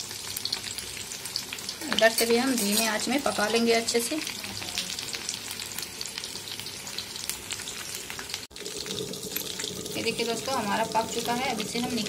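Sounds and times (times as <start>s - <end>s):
chicken deep-frying in oil: 0.0s - 12.0s.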